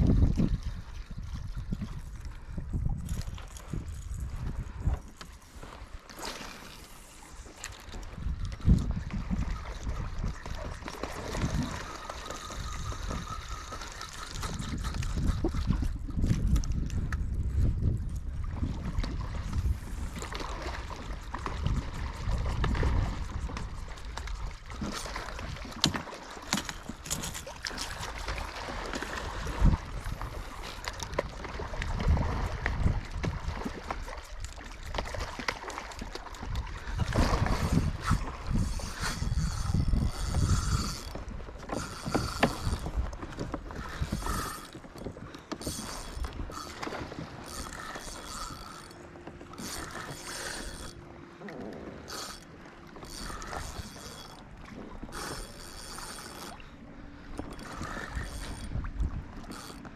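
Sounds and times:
wind buffeting microphone: 0:00.0 - 0:06.0, 0:06.9 - 0:51.0, 0:53.0 - 0:59.9
water around boat: 0:00.0 - 0:59.9.

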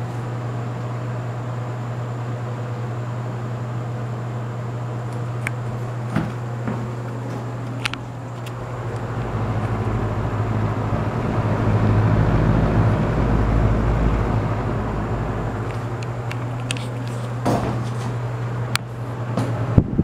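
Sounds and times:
fan motor hum: 0:00.0 - 0:20.0
rushing air from fan: 0:00.0 - 0:20.0
wind on microphone: 0:19.7 - 0:20.0.

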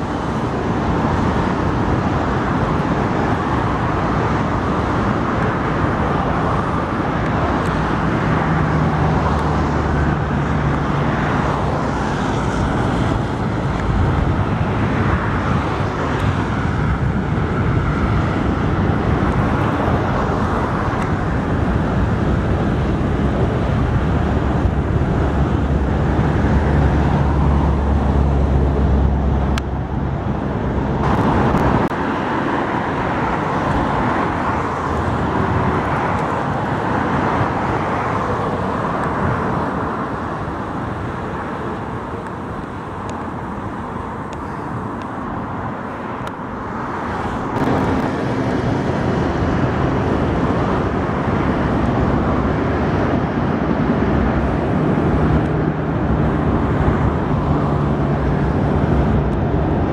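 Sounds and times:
road traffic passing: 0:00.0 - 0:59.9
heavy vehicle deep rumble: 0:15.8 - 0:59.9.

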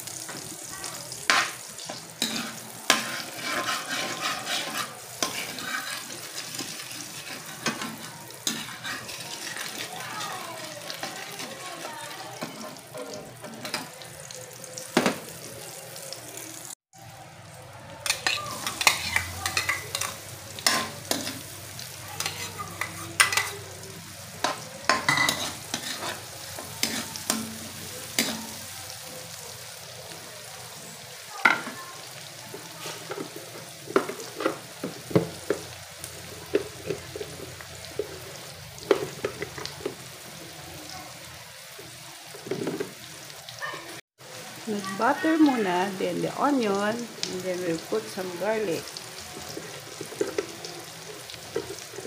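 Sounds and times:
onion sizzling in a wok: 0:00.0 - 0:52.0
metal spoon scraping a pan: 0:01.3 - 0:14.0, 0:18.0 - 0:23.7, 0:24.4 - 0:28.7
spoon clinking against pan: 0:22.2 - 0:23.6, 0:24.4 - 0:27.6.

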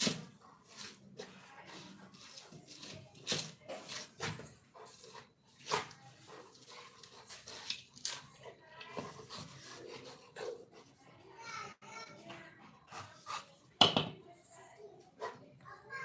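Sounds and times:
dog panting: 0:03.7 - 0:11.4, 0:12.3 - 0:13.8, 0:15.1 - 0:15.8
dog crunching and tearing husk: 0:05.6 - 0:10.2.

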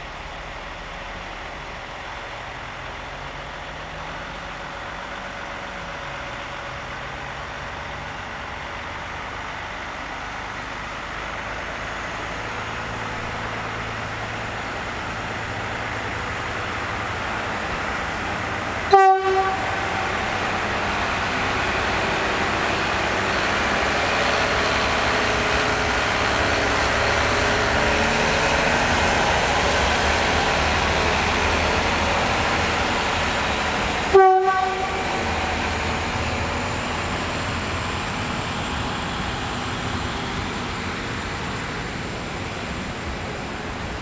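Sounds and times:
diesel locomotive engine working: 0:00.0 - 0:44.0
train coaches rolling: 0:00.0 - 0:44.0
train horn blast: 0:18.9 - 0:20.1, 0:34.1 - 0:35.4.

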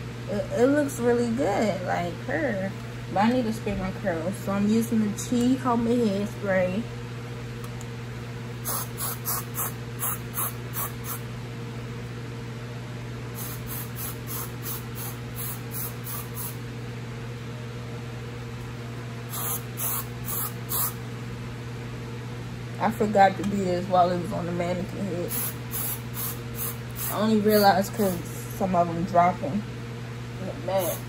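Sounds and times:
aerosol hairspray spritzes: 0:08.6 - 0:11.2, 0:13.4 - 0:16.6, 0:19.3 - 0:21.0, 0:25.3 - 0:27.2, 0:30.8 - 0:31.0.

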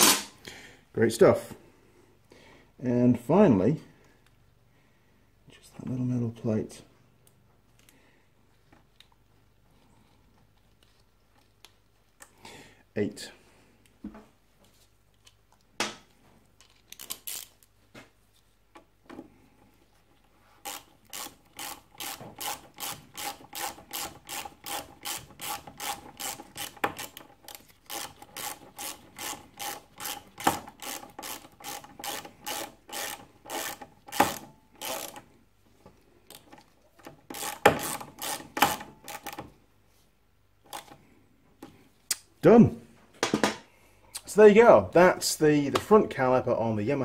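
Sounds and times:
socket ratchet clicking: 0:20.6 - 0:35.2, 0:36.3 - 0:39.4.

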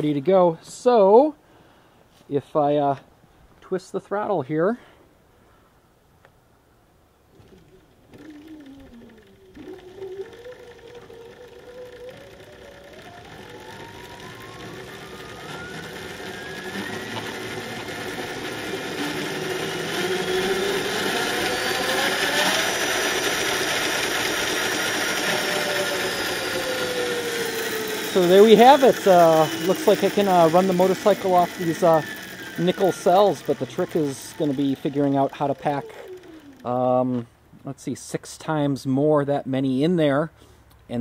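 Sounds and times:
electric motor whine rising in pitch: 0:07.4 - 0:37.2.

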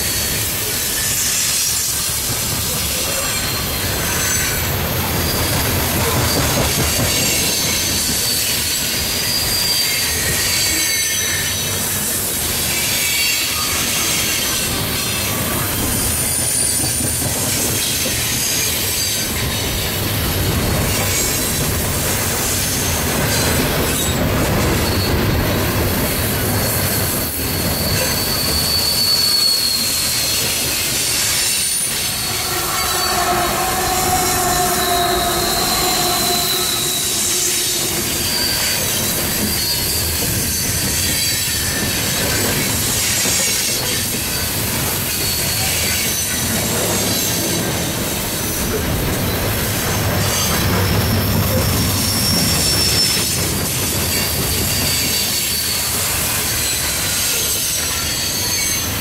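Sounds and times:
train wheels rumbling on rails: 0:00.0 - 0:59.0
high-pitched wheel squeals: 0:27.2 - 0:40.9.

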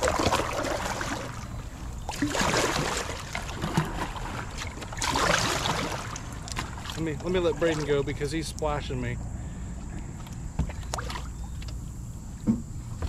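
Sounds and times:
kayak paddle splashing water: 0:00.0 - 0:08.8, 0:10.2 - 0:11.7.

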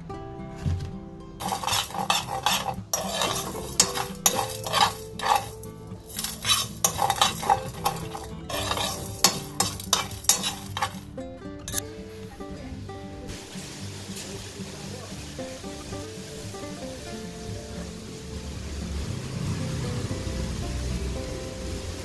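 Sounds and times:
seeds rattling and hissing: 0:01.4 - 0:11.0
spoon scraping seeds in a pan: 0:01.4 - 0:11.1.

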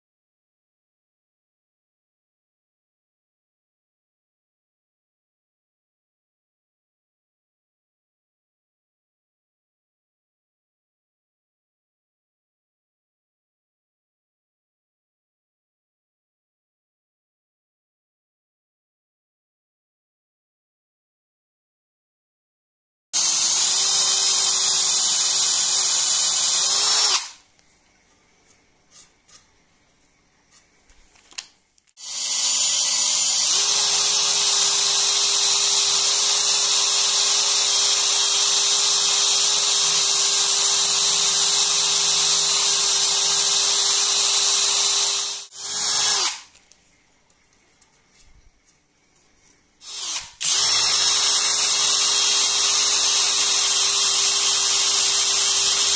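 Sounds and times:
power drill boring into wood: 0:23.2 - 0:27.4, 0:32.0 - 0:46.6, 0:49.8 - 0:55.9.

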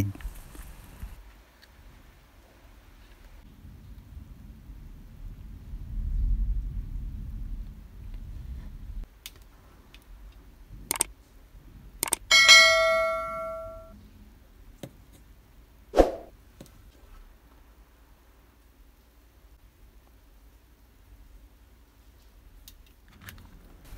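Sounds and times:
bright bell ding: 0:12.3 - 0:13.9
short swoosh: 0:16.0 - 0:16.3.

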